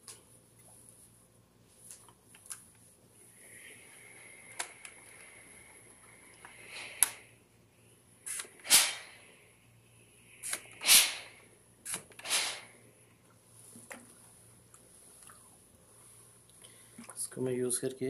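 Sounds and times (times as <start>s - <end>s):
iron swishing over shirt: 8.3s - 9.2s, 10.4s - 12.7s.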